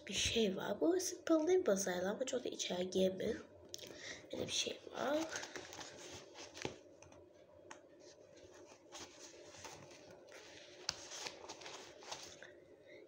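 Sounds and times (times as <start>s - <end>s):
rummaging in a pencil case: 8.4s - 12.4s.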